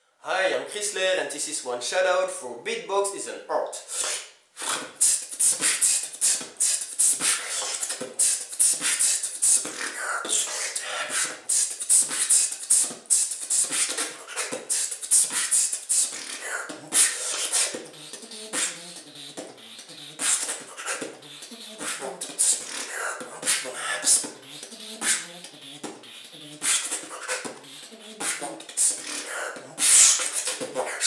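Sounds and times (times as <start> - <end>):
person beatboxing: 3.7 - 31.0.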